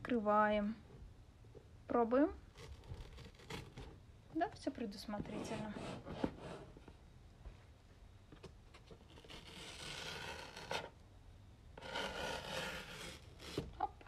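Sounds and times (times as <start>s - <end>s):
cardboard box tear strip ripping: 2.5s - 4.0s, 8.8s - 11.0s, 11.8s - 13.8s.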